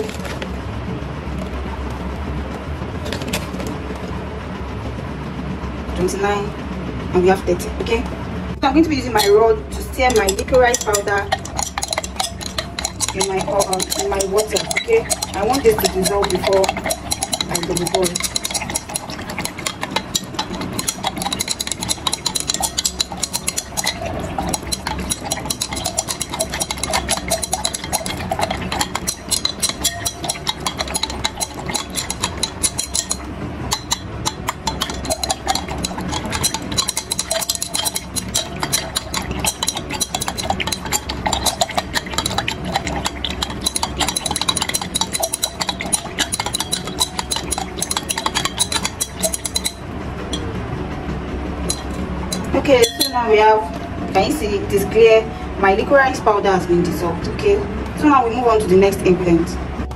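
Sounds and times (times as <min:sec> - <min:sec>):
glass rod clinking in beaker: 0:10.0 - 0:50.4, 0:51.7 - 0:53.4.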